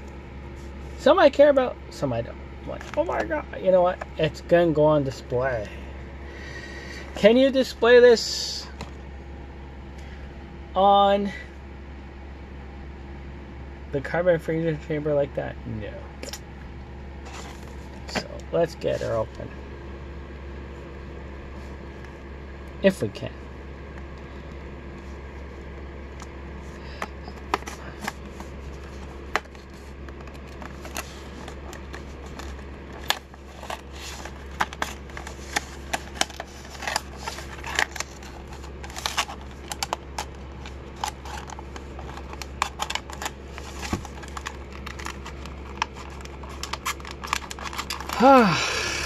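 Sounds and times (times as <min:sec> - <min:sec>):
steady low hum: 0:00.0 - 0:49.0
plastic packaging clicking and crackling: 0:26.9 - 0:48.4.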